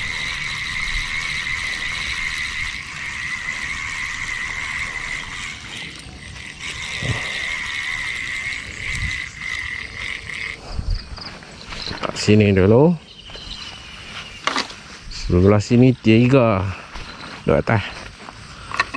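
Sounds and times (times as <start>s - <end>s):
fishing reel knocks: 0.0s - 10.6s, 14.4s - 14.8s, 18.6s - 18.9s
frogs and insects calling: 0.0s - 18.9s.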